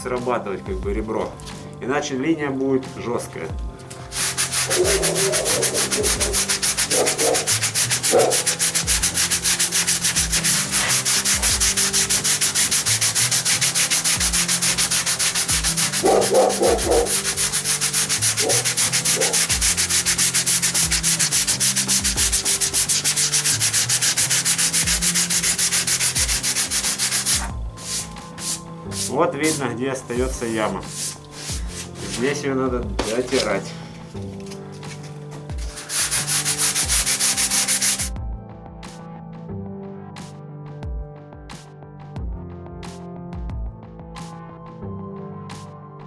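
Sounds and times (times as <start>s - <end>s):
sandpaper rubbing on filler: 4.0s - 38.1s.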